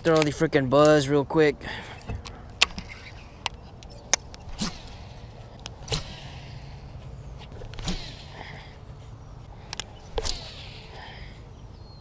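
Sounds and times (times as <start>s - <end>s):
fishing tackle clicks and knocks: 2.0s - 4.9s, 9.7s - 10.4s.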